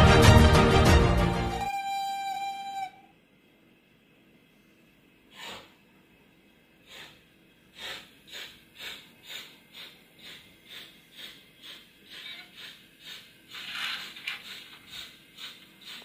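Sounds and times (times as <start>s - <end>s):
steam locomotive chuffs: 6.9s - 16.0s.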